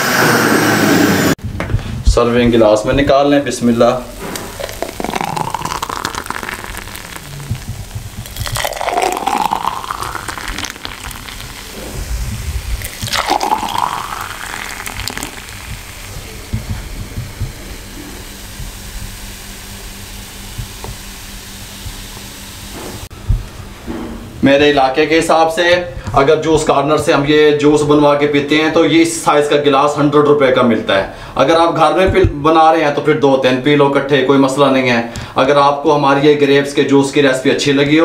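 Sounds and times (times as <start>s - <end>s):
juice pouring into glass: 4.2s - 12.0s, 12.8s - 16.7s.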